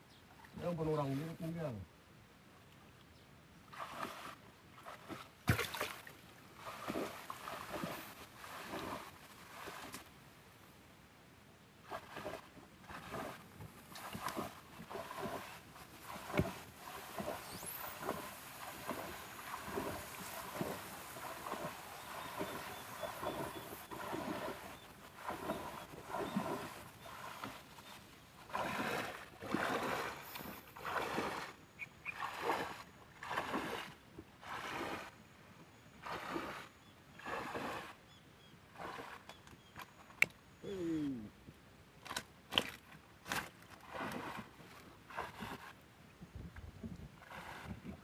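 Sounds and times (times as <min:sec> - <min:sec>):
reeds scraping canoe hull: 0:03.7 - 0:05.9, 0:06.5 - 0:10.1, 0:11.8 - 0:35.2, 0:36.0 - 0:38.0, 0:38.7 - 0:40.2, 0:42.0 - 0:45.8, 0:47.1 - 0:48.0
legs wading through swamp water: 0:03.7 - 0:10.2, 0:11.8 - 0:35.2, 0:36.0 - 0:38.0, 0:38.7 - 0:40.1, 0:42.1 - 0:45.8, 0:47.1 - 0:48.0.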